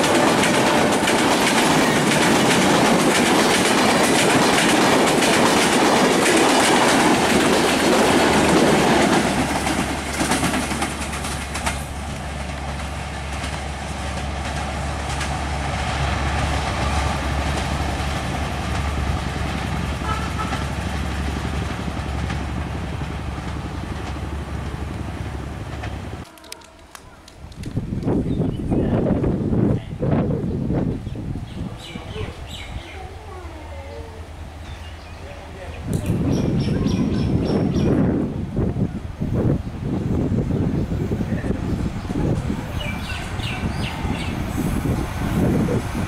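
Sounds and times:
train wheels rattling over rails: 0.0 - 28.3, 40.0 - 46.0
train rumble with low hum: 0.0 - 46.0.

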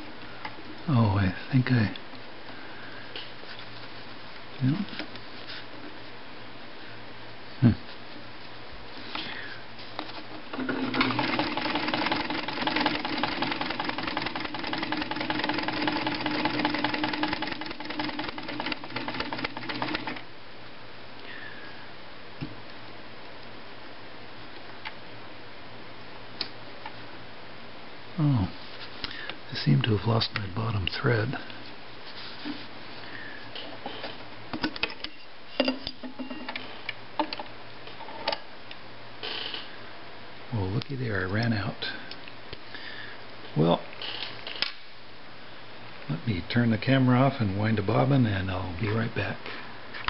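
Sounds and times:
sewing machine running: 10.6 - 20.2.

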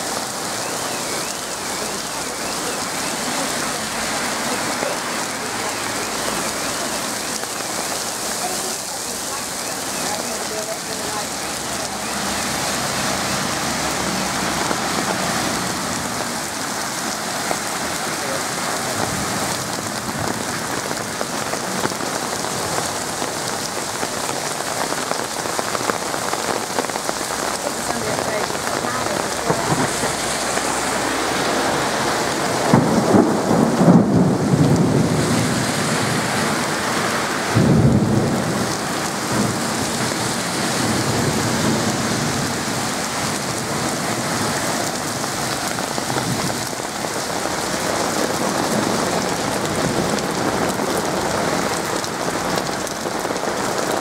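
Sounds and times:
heavy rain on road: 0.0 - 54.0
thunder rumbling: 9.1 - 54.0.

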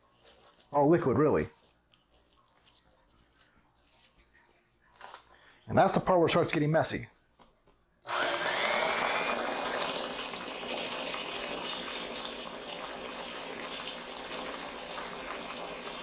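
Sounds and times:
stand mixer motor whine: 8.1 - 16.0.

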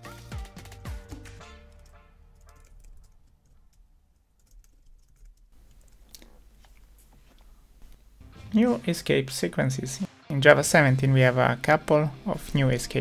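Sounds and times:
background music: 0.0 - 3.1, 8.0 - 13.0
faint keyboard typing: 1.7 - 8.0.

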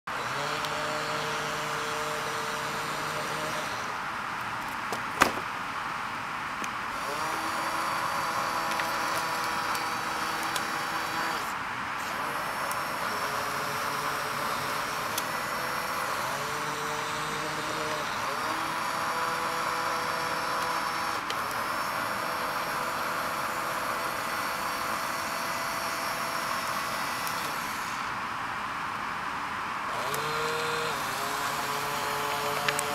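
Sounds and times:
small geared motors whirring: 0.1 - 4.0, 7.0 - 28.1, 29.9 - 32.9.

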